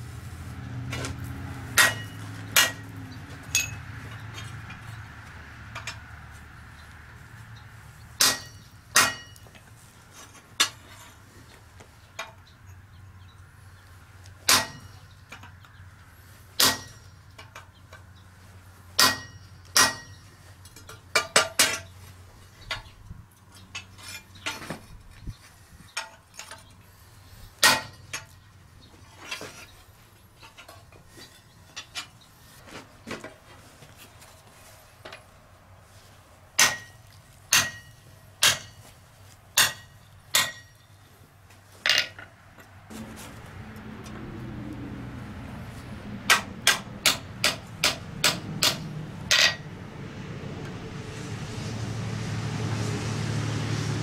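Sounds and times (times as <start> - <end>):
hammer striking metal on anvil: 1.7 - 3.8, 8.2 - 9.4, 14.5 - 15.1, 16.6 - 17.1, 19.0 - 20.3, 36.6 - 38.9, 39.6 - 40.9, 46.3 - 49.6.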